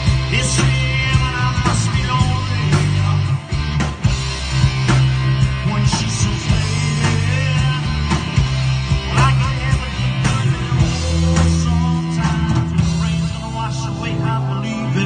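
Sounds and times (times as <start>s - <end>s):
bass guitar: 0.0s - 15.0s
distorted electric guitars: 0.0s - 15.0s
drum kit: 0.0s - 15.0s.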